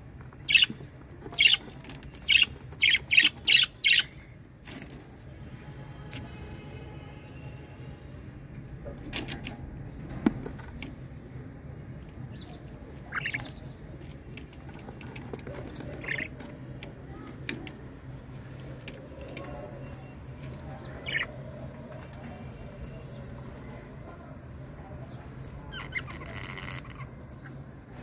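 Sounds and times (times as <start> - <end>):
chicks giving high chirps: 1.3 - 4.1, 13.0 - 13.7, 20.8 - 21.4.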